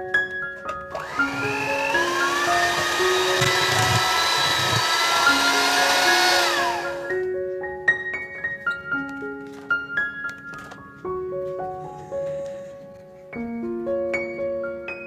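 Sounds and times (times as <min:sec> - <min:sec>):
light piano music: 0:00.0 - 0:15.0
electric hand mixer running: 0:00.9 - 0:07.2.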